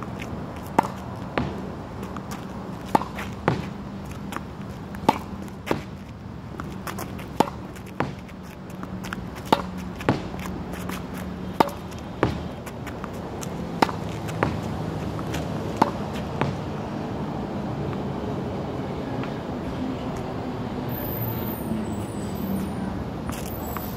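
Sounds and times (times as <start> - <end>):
racket striking tennis ball: 0.6 - 6.0, 6.6 - 16.7.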